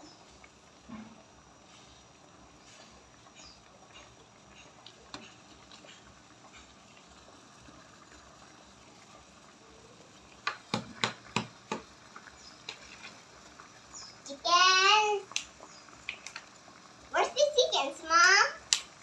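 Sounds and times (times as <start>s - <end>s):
water simmering in a pot: 0.0s - 19.0s
small ticks: 15.2s - 16.6s, 18.6s - 19.0s.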